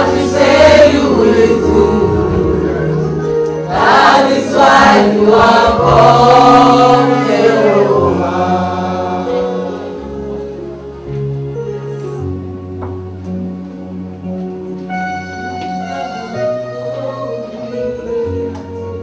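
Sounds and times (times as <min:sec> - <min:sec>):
group singing gospel song: 0:00.0 - 0:10.4
held keyboard chords: 0:00.0 - 0:19.0.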